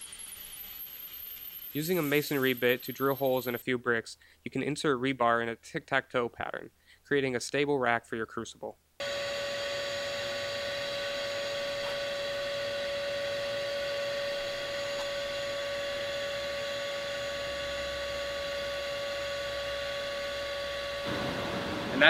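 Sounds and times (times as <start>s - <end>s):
steady electric hum: 9.0s - 22.0s.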